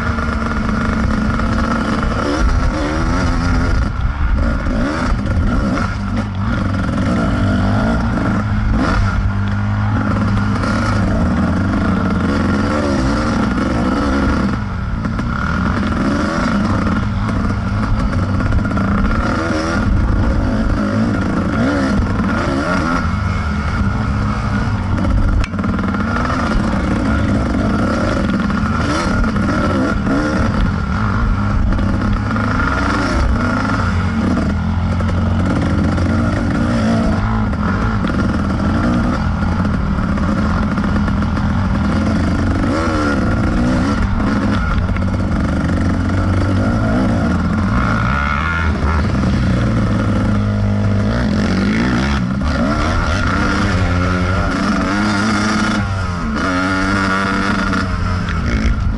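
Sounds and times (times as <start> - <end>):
dirt bike engine revving: 0.0 - 58.9.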